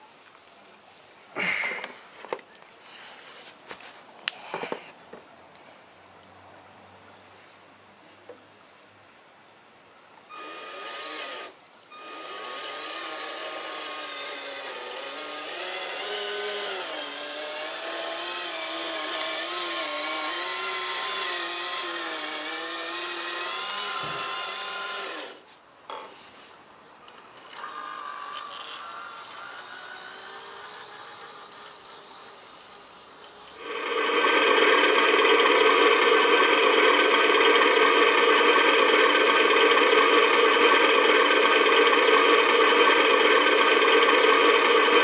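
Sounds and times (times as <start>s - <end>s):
toy truck electric motor whining: 10.3s - 25.5s, 27.5s - 45.0s.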